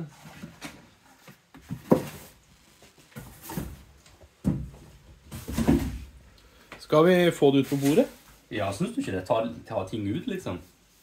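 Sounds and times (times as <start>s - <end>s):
cardboard boxes rustling: 0.1s - 6.2s.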